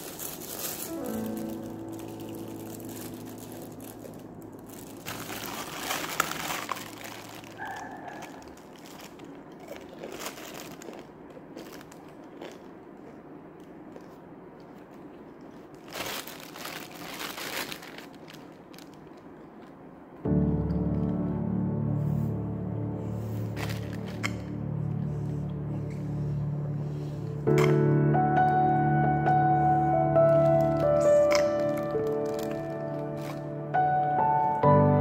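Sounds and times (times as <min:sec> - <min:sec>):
plastic bag crinkling: 0:00.0 - 0:13.2, 0:15.3 - 0:19.8, 0:23.4 - 0:24.6, 0:30.0 - 0:34.2.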